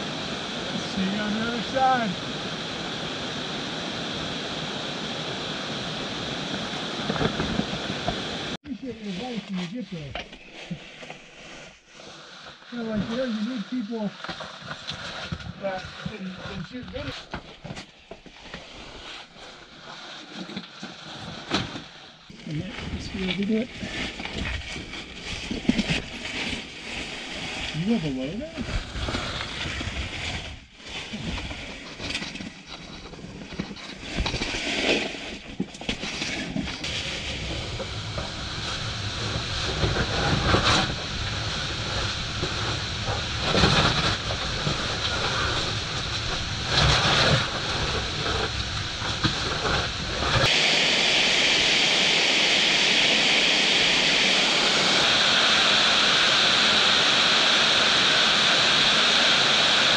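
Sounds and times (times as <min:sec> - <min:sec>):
scuffs and scrapes on rock: 0:08.9 - 0:37.9.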